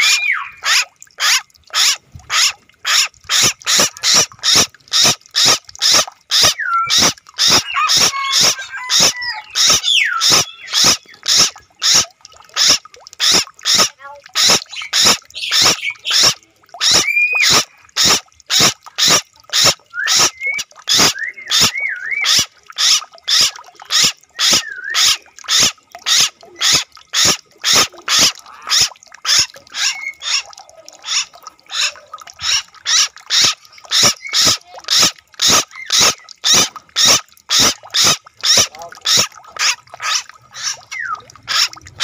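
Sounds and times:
wavering whistled notes: 24.5 - 25.0.

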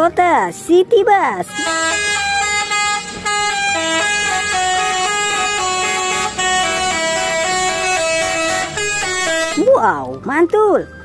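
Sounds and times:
bus engine humming low: 1.3 - 10.4
musical bus horn melody: 1.4 - 10.1.

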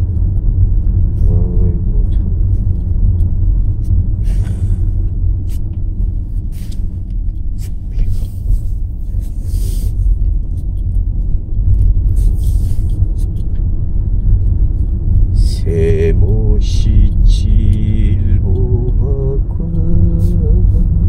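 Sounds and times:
car engine and tyres rumbling: 0.0 - 21.0
short hissing scrapes: 9.4 - 10.0.

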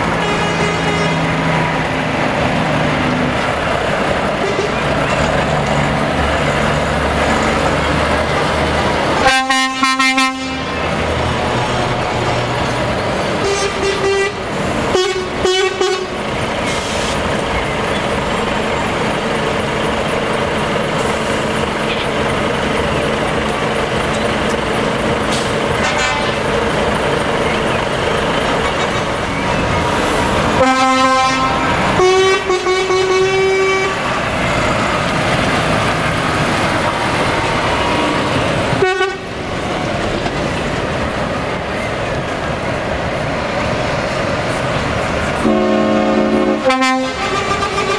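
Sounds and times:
truck diesel engines running: 0.0 - 47.9
truck horn blasts: 0.1 - 1.3, 9.2 - 10.8, 13.4 - 16.2, 25.8 - 26.4, 30.6 - 34.1, 38.8 - 39.3, 45.4 - 47.9.

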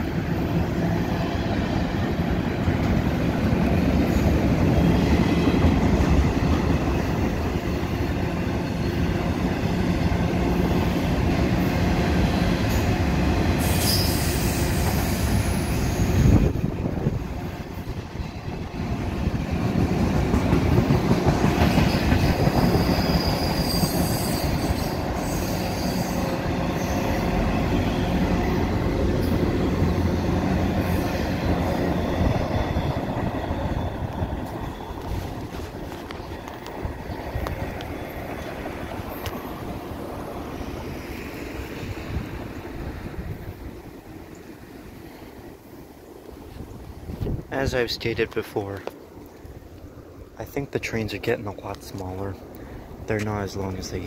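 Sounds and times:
freight train wheels rumbling: 0.0 - 54.0
high wheel squeals: 13.6 - 16.4, 21.8 - 28.6.

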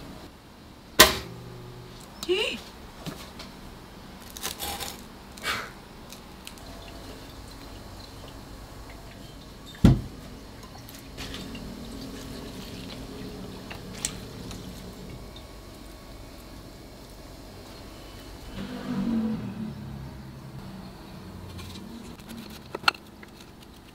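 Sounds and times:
heavy thud: 1.0 - 1.6, 9.8 - 10.2
wooden tongs scraping: 21.5 - 23.9.

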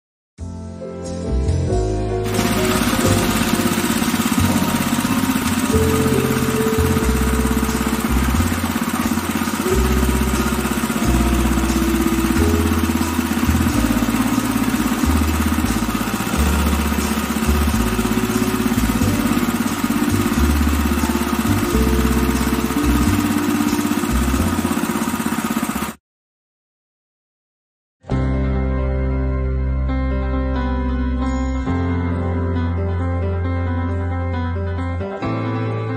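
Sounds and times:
petrol engine running: 2.2 - 26.0
cane crusher rollers: 2.3 - 26.0.

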